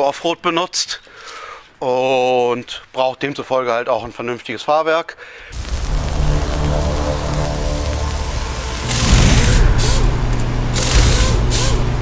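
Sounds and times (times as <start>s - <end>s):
loud hiss: 5.5s - 12.0s
music with low notes: 5.6s - 12.0s
steady low hum: 5.6s - 12.0s.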